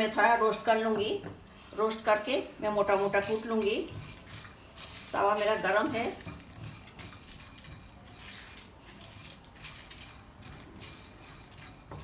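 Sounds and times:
seeds scraping and rattling in pan: 2.6 - 12.0.

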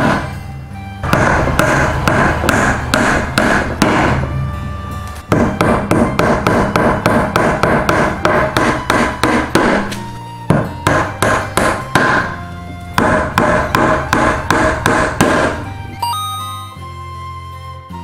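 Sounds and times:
hammer driving nails into wood: 0.0 - 0.3, 1.0 - 4.3, 5.3 - 12.4, 13.0 - 15.6.

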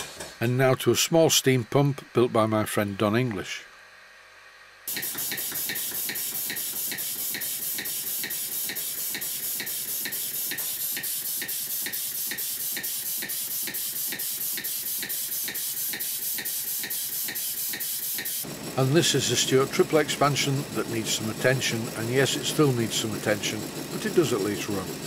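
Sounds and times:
continuous air hiss: 0.0 - 18.1
steam pump exhaust puffs: 4.9 - 25.0.

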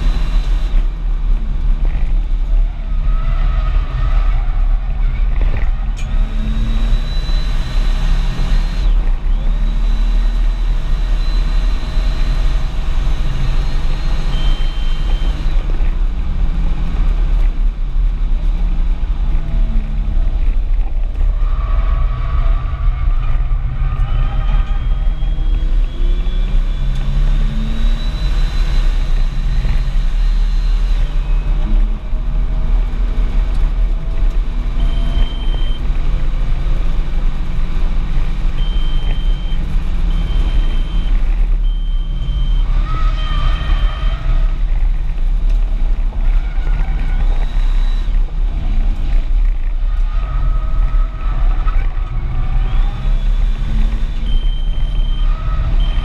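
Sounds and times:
car engine rumble: 0.0 - 56.0
road noise inside car: 0.0 - 56.0
short high beeps: 14.2 - 15.6, 38.6 - 42.7, 54.2 - 56.0.

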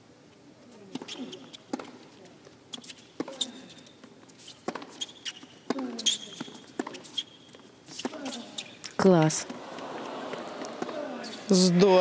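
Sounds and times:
shoe squeaks on court: 0.9 - 2.0, 2.7 - 8.9
tennis ball struck by rackets: 0.9 - 2.0, 4.6 - 5.0, 5.6 - 7.1.

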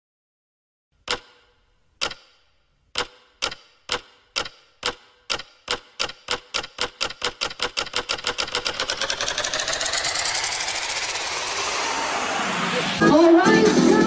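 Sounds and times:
sharp ticks speeding up: 3.0 - 12.6.

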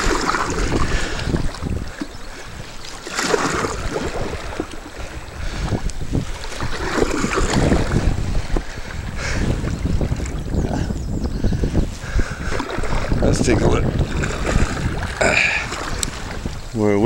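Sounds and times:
river waves splashing against hull: 0.0 - 17.0
wind buffeting microphone: 0.0 - 17.0.

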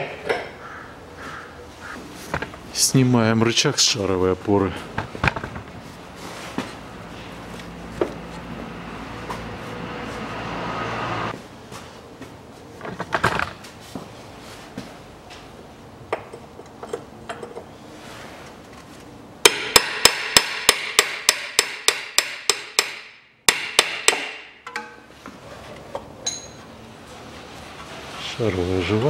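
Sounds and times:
faint metal clinks: 26.2 - 26.6.

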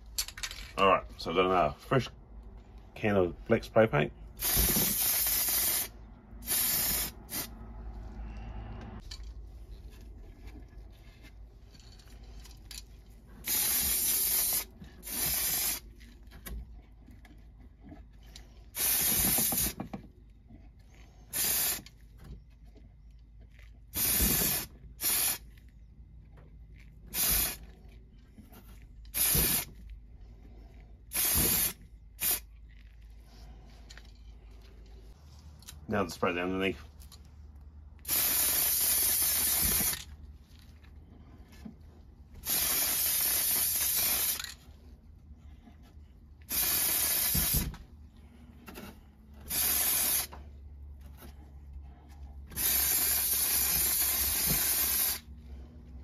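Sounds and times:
aerosol spray can hissing: 4.4 - 7.5, 13.4 - 15.9, 18.8 - 19.8, 21.4 - 21.8, 24.0 - 25.4, 29.2 - 29.7, 31.1 - 32.5, 38.1 - 40.0, 42.4 - 44.4, 46.5 - 47.7, 49.5 - 50.3, 52.6 - 55.3.

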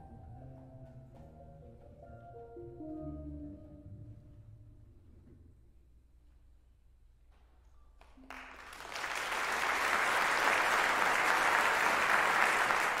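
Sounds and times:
audience applause: 8.2 - 13.0.

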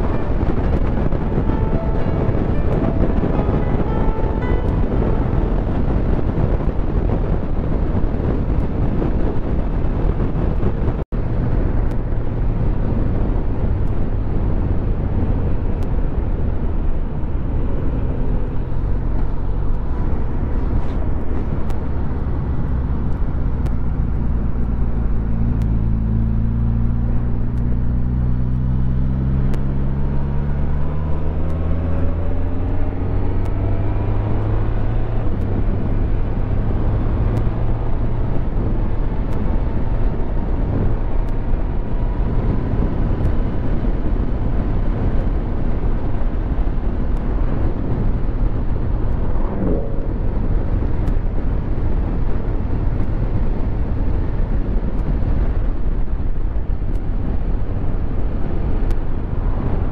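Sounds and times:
wind rush on microphone: 0.0 - 59.9
motorcycle engine running: 33.4 - 59.9.

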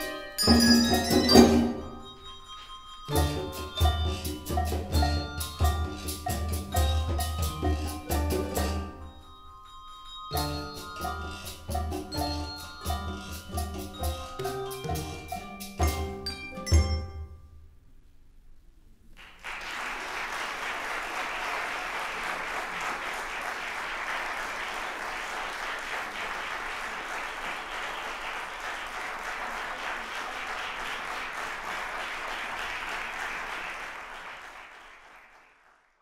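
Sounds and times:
handbell notes: 0.0 - 17.6
audience applause: 19.2 - 36.0.

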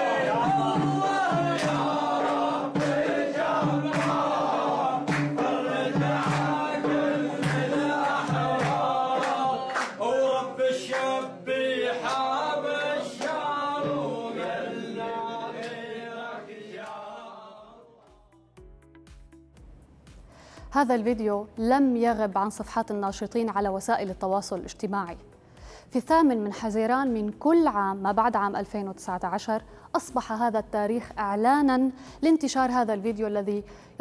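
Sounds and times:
men chanting together: 0.0 - 18.3
sharp claps: 0.4 - 4.4, 5.0 - 10.0, 10.9 - 11.2, 12.0 - 12.4, 13.2 - 13.5.

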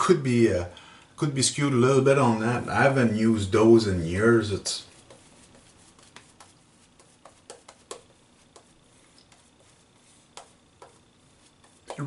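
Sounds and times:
razor scratching stubble: 4.8 - 12.0.

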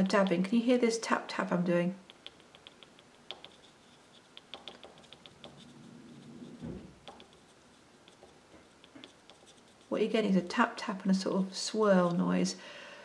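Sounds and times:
pastel stick tapping on paper: 2.0 - 9.8
soft swirling rub: 2.0 - 12.5
dull thump: 6.6 - 7.0.

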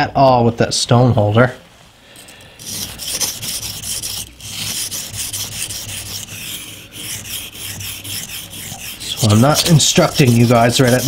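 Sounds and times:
knife scraping on whetstone: 2.6 - 11.0.

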